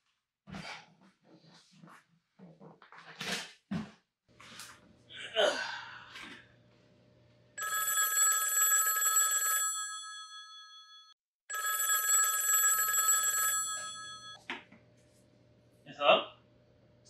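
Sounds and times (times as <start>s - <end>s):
telephone bell ringing: 7.6s - 14.4s.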